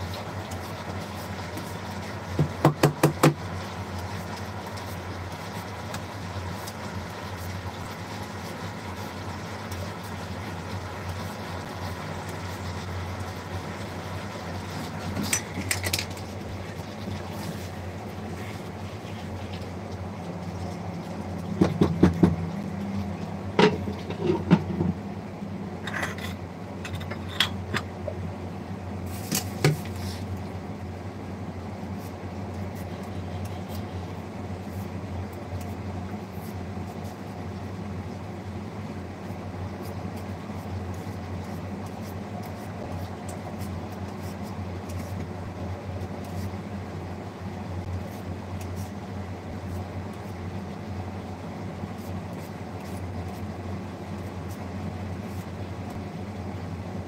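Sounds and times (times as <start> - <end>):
low mechanical hum: 0.0 - 57.0.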